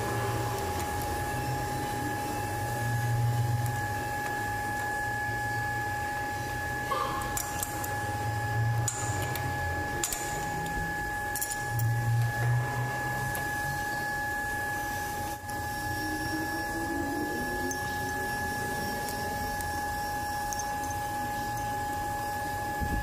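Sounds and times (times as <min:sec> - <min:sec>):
metal lathe whining: 0:00.0 - 0:23.0.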